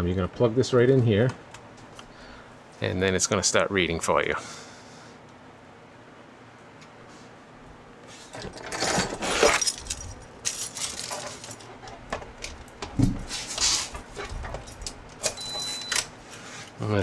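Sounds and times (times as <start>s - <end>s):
keys jangling: 9.5s - 11.7s.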